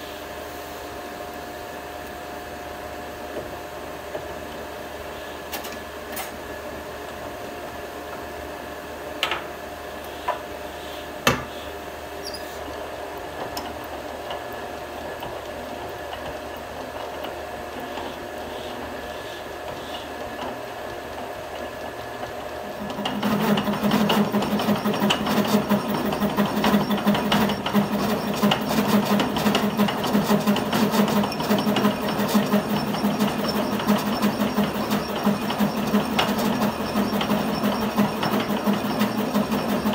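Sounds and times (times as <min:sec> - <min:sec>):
metal lathe humming: 0:12.7 - 0:39.9.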